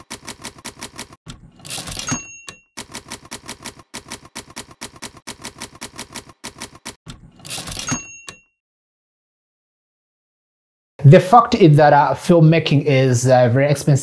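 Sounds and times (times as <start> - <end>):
typewriter carriage return: 0.0 - 8.4
typewriter bell ding: 1.8 - 3.2, 7.6 - 8.5.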